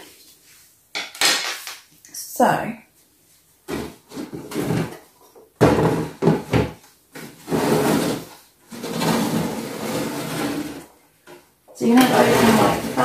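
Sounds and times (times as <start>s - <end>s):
plastic scraping on table: 5.7s - 10.9s, 12.0s - 13.0s.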